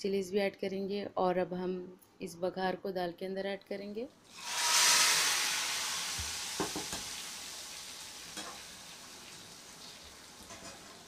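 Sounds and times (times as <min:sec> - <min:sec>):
hot oil sizzling: 0:04.2 - 0:11.0.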